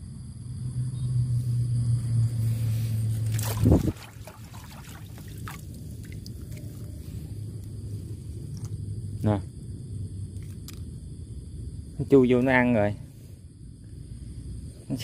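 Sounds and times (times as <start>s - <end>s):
low steady hum: 0.0s - 15.0s
water trickling and dripping: 3.3s - 7.0s.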